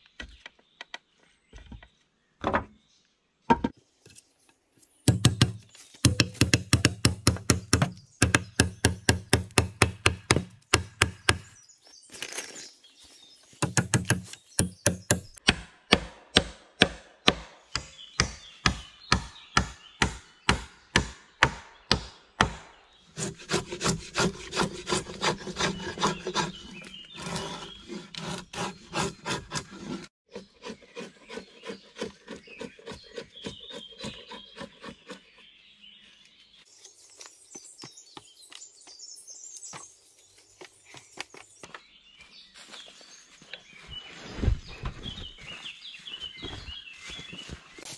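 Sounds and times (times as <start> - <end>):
hand saw cutting wood: 23.1 - 35.4.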